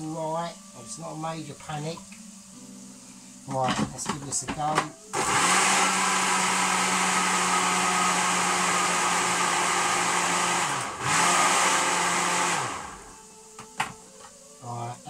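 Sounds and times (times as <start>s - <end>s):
electric blender running: 5.1s - 13.2s.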